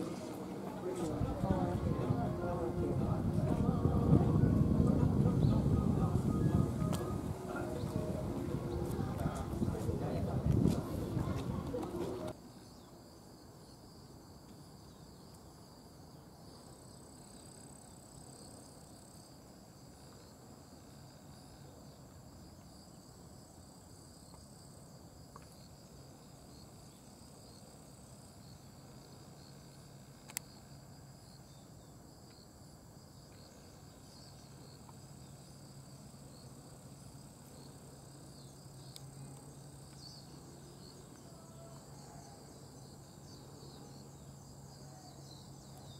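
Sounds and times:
faint low hum: 0:00.0 - 0:13.0
insects chirping: 0:00.0 - 0:45.9.

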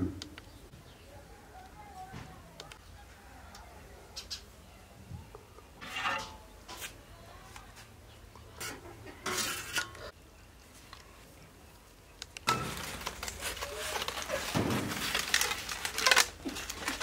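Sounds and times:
metal utensils clinking on dishes: 0:05.8 - 0:06.9.

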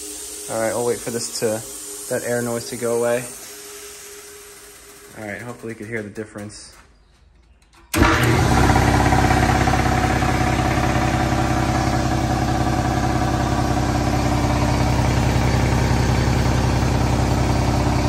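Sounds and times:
air compressor running: 0:00.0 - 0:07.1, 0:07.9 - 0:18.0.

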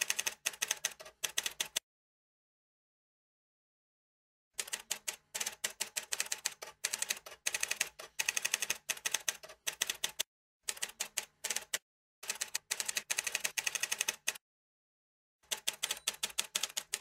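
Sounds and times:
typewriter keys clacking: 0:15.5 - 0:17.0.

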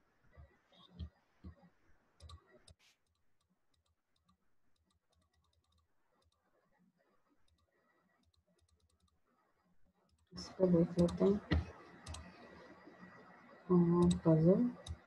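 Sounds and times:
computer mouse clicks: 0:02.2 - 0:06.4, 0:11.0 - 0:12.7, 0:14.0 - 0:15.0.

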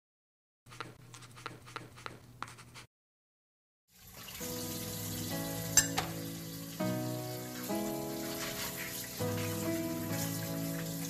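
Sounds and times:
faucet running into sink: 0:03.9 - 0:11.0
soft background music: 0:04.2 - 0:11.0.

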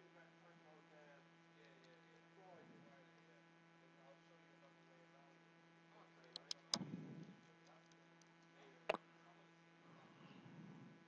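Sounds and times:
mains hum: 0:00.0 - 0:11.0
small tool clicks on phone: 0:06.3 - 0:06.8.

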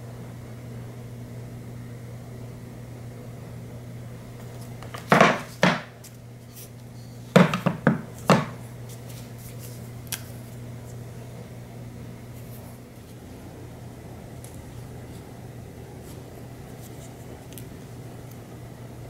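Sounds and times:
low steady hum: 0:00.0 - 0:19.0
watch case knocking on wooden table: 0:07.4 - 0:08.6.

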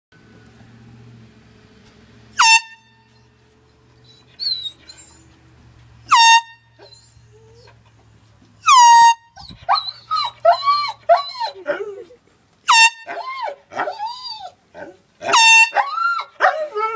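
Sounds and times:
air horn blasts: 0:02.4 - 0:03.2, 0:06.1 - 0:06.8, 0:12.7 - 0:13.2
dog howling: 0:08.7 - 0:12.2, 0:13.1 - 0:16.9.

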